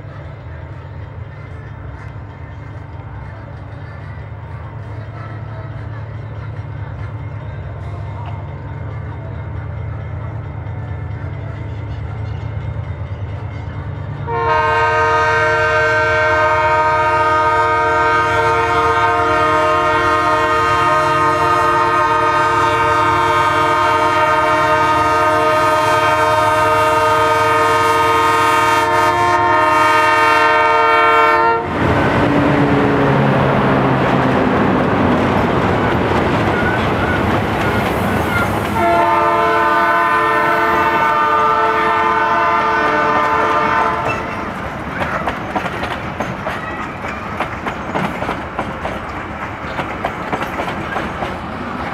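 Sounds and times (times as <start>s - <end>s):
train engines and wheels roaring: 0.0s - 51.9s
train air horn: 14.2s - 31.8s, 38.2s - 44.5s.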